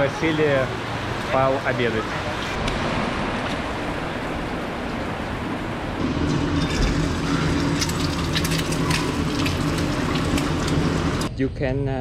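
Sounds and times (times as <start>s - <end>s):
heavy rain: 0.0s - 11.3s
kitchen hum: 6.0s - 11.3s
eggs cracking into pan: 6.2s - 11.3s.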